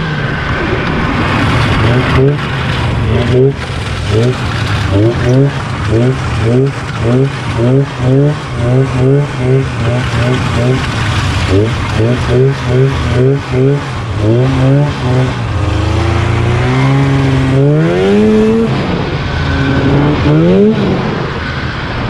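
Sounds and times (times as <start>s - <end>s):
snowmobile engine revving: 0.0s - 22.0s.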